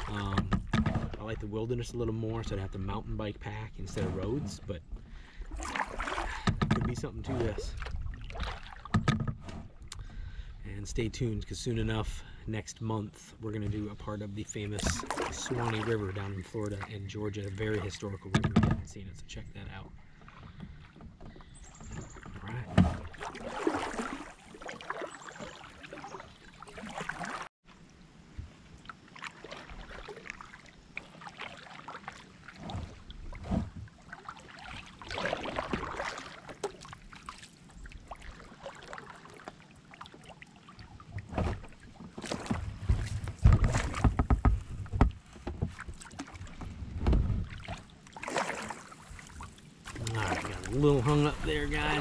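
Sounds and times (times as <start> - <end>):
paddle blades splashing: 0.0 - 10.6, 13.4 - 52.0
irregular knocks: 42.9 - 45.8.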